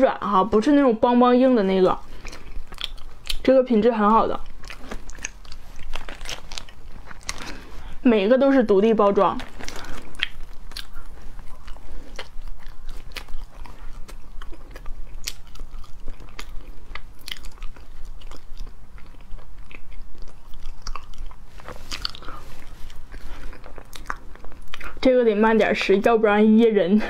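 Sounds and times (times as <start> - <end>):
person chewing: 2.0 - 3.5, 4.2 - 8.0, 9.2 - 25.0.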